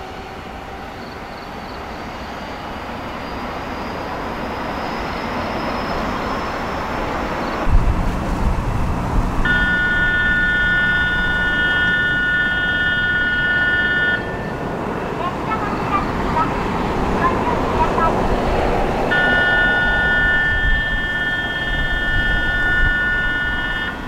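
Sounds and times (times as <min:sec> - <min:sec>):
electric train rumbling past: 0:00.0 - 0:24.0
high multi-note tone: 0:07.7 - 0:14.6, 0:19.1 - 0:24.0.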